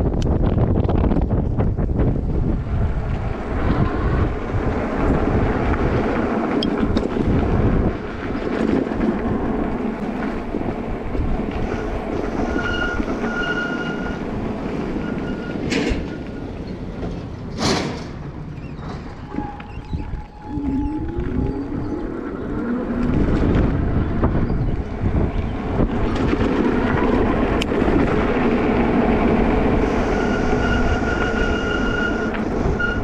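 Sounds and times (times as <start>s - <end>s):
e-bike riding rumble: 0.0s - 33.0s
wind buffeting microphone: 0.0s - 33.0s
high-pitched squeals: 11.5s - 17.1s, 17.8s - 24.8s, 29.7s - 33.0s.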